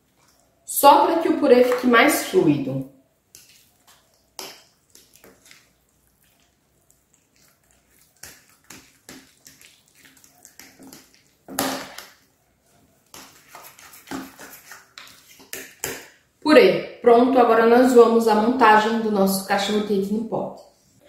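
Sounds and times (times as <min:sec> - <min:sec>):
fork scraping mashed potato: 0:03.3 - 0:11.6, 0:12.7 - 0:15.9.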